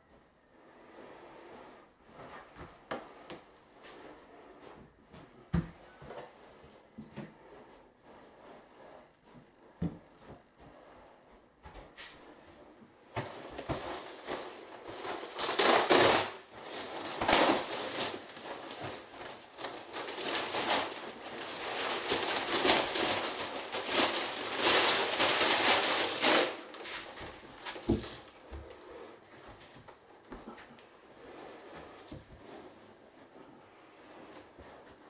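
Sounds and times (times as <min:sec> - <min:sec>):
plastic wrapping crinkling: 0:13.2 - 0:28.5.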